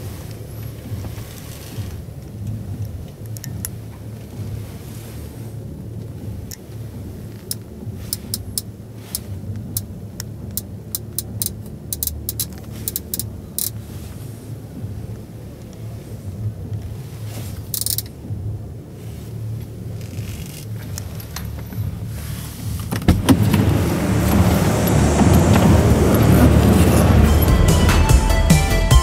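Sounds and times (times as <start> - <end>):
sharp clicks of car controls: 6.0 - 13.8, 22.8 - 27.0
exhibition hall rumble: 22.7 - 29.0.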